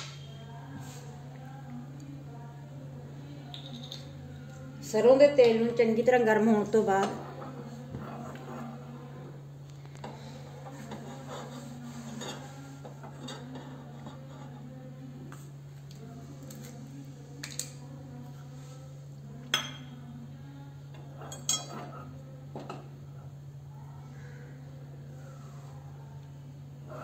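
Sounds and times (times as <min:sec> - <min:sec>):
steady low hum: 0:00.0 - 0:27.0
metal kitchenware clinking: 0:21.3 - 0:21.9.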